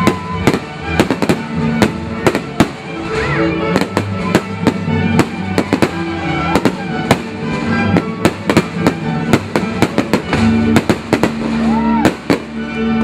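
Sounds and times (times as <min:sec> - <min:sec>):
fireworks bursting: 0:00.0 - 0:13.0
orchestral music: 0:00.0 - 0:13.0.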